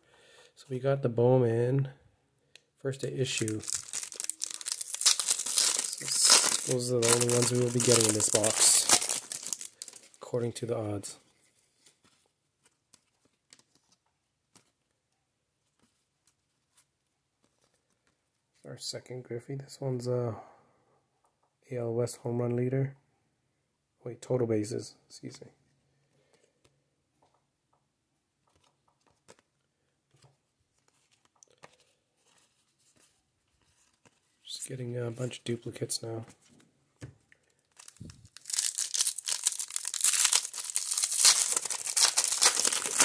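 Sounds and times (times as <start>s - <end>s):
cards being shuffled in hand: 3.2s - 10.2s, 28.4s - 34.4s, 37.8s - 43.0s.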